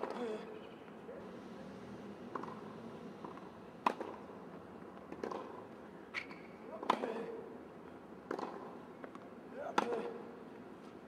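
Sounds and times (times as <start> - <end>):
tennis ball struck and bouncing: 2.3 - 2.6, 3.2 - 4.2, 5.1 - 5.6, 8.3 - 8.7.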